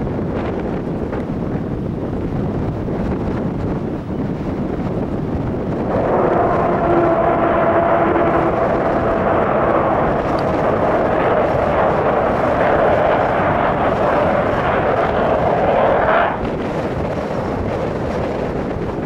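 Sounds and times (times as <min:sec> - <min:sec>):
rising jet whine: 0:05.6 - 0:17.5
jet aircraft flying past: 0:05.8 - 0:17.5.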